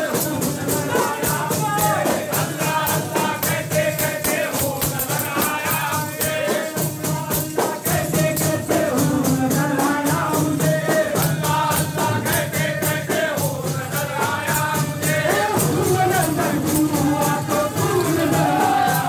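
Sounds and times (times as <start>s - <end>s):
jingling rattling percussion: 0.0s - 19.0s
voices chanting and singing: 0.0s - 19.0s.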